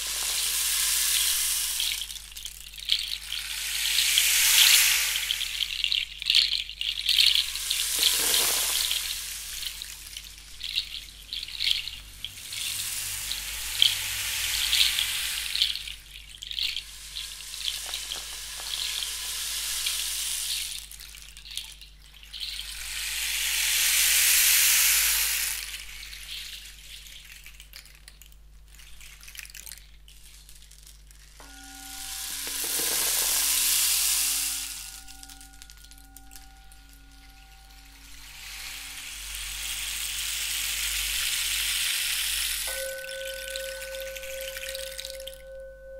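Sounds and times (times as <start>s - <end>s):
gong shimmering overtones: 31.4s - 33.1s, 42.7s - 45.9s
steady pulsing ringing tone: 31.4s - 39.7s, 42.6s - 45.9s.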